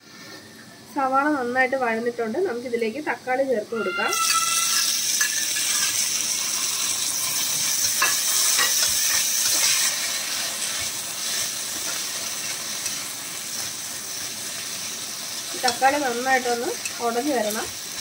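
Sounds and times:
tomatoes sizzling in hot oil: 1.0 - 18.0
metal utensil scraping a pan: 3.8 - 13.1.

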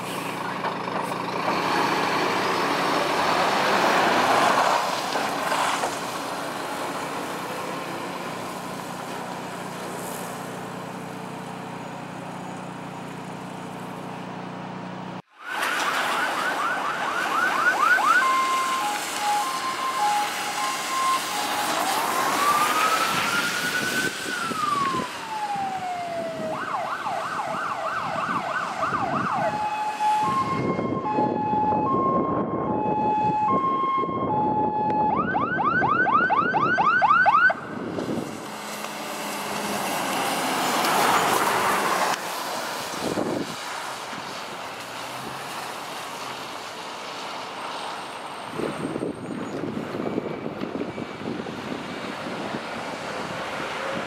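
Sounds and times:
diesel engine running: 0.0 - 15.2
electronic siren cycling patterns: 15.8 - 37.8.

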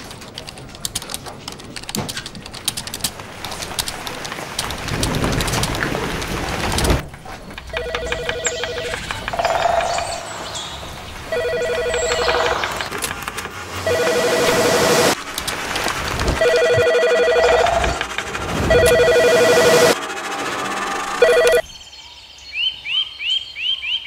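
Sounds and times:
keyboard clicks: 0.0 - 10.6
telephone two-tone ringing: 7.7 - 10.3, 11.3 - 12.9, 13.8 - 15.2, 16.4 - 18.0, 18.6 - 20.0, 21.2 - 21.6
rushing noise: 9.2 - 21.6.

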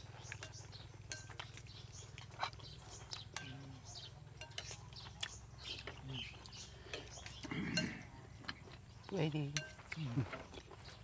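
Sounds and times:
chewing: 0.0 - 11.0
spoons clinking on plates: 0.4 - 1.6, 4.4 - 5.0.

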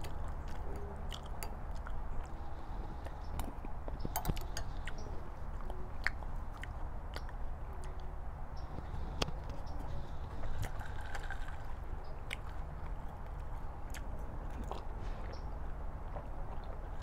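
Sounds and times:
chewing: 0.0 - 17.0
low background rumble: 0.0 - 17.0.

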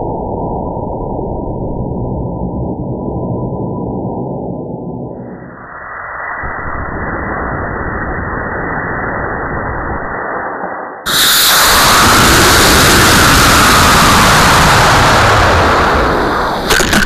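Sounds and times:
rocket rushing roar with whine: 5.1 - 17.0
rocket motor rushing hiss: 11.1 - 17.0.

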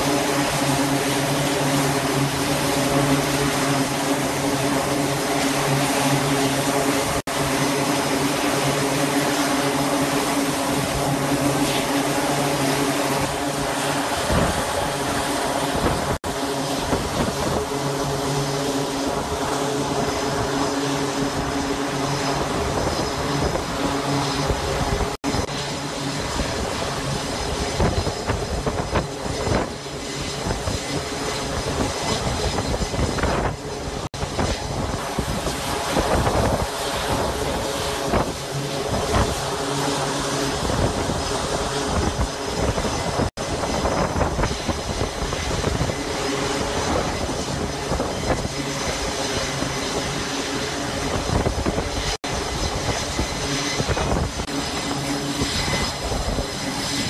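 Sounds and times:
mechanical drone with hum tones: 0.0 - 57.0
wind noise: 0.0 - 57.0.

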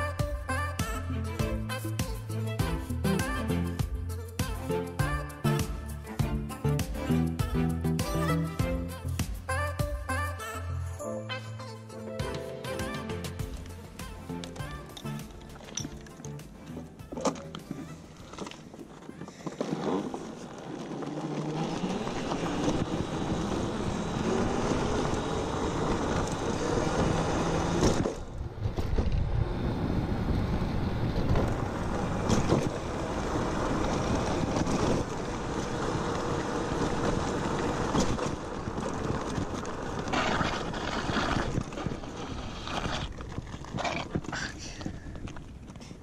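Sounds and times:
electric scooter motor whine: 17.1 - 45.8
wind noise on microphone: 22.0 - 45.6.

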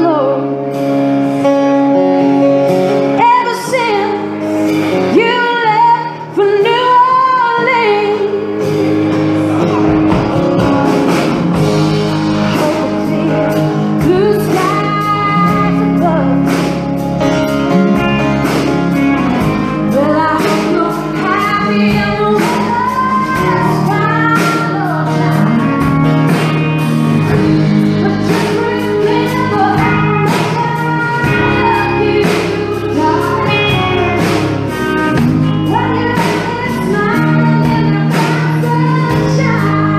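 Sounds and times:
woman singing: 0.0 - 0.8, 3.0 - 8.9, 12.3 - 17.0, 19.4 - 26.5, 27.2 - 39.9
acoustic guitar: 0.0 - 39.9
electric guitar: 0.0 - 39.9
drums keeping a steady beat: 2.2 - 39.9.

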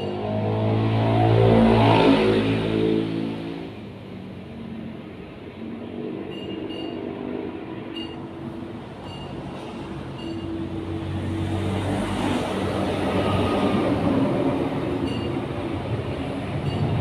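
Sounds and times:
vehicle rumble passing: 0.0 - 17.0.

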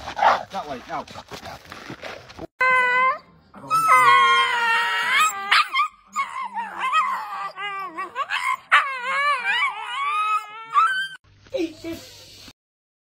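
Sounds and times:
dogs whining and yowling: 2.6 - 11.2.

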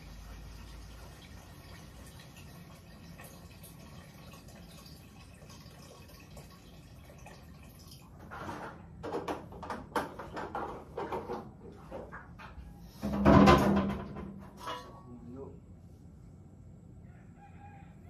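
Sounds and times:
plastic water jug knocks and bumps: 8.6 - 12.3, 13.0 - 14.5.

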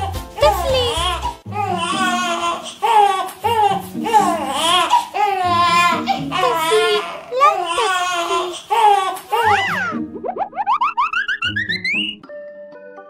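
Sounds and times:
baby crying: 0.0 - 10.0.

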